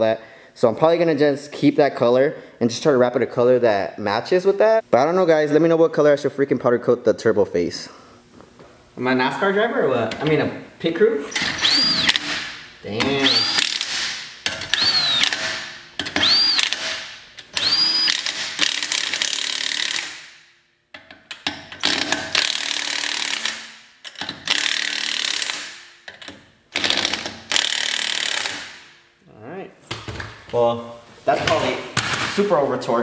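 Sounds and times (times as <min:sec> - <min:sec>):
cordless impact wrench bursts: 0:11.3 - 0:20.4, 0:21.8 - 0:25.9, 0:26.7 - 0:28.8.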